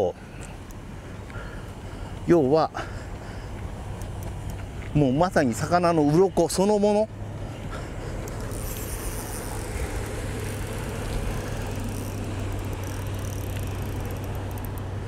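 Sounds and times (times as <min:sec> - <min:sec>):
steady low hum: 0:07.1 - 0:15.0.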